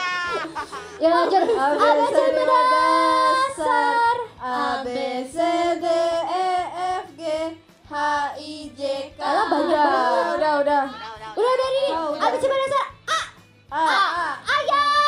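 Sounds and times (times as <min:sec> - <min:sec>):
young women singing into microphones: 0:01.0 - 0:10.9.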